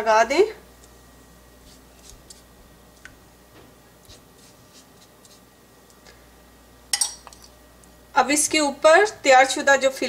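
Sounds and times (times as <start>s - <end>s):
pastry brush strokes: 1.6s - 3.2s, 4.0s - 5.5s.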